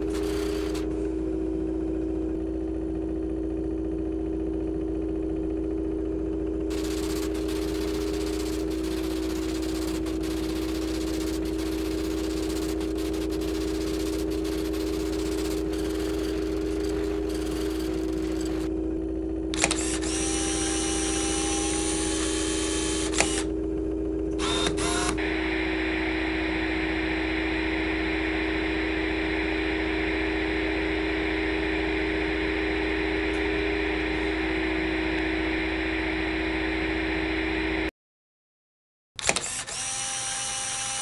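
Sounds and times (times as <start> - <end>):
steady whirring: 0.0 - 37.9, 39.2 - 41.0
electrical hum and hiss: 6.7 - 18.7, 24.3 - 37.9
sharp clicks: 19.6 - 20.1, 23.1 - 23.5, 39.2 - 39.8.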